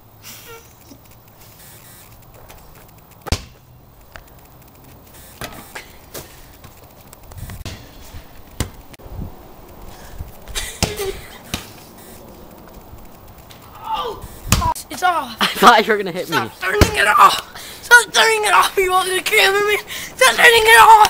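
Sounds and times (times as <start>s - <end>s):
basketball hitting hoop: 3.2s - 3.6s, 5.4s - 5.7s
basketball bouncing: 3.2s - 3.7s, 8.6s - 8.8s, 10.8s - 11.8s.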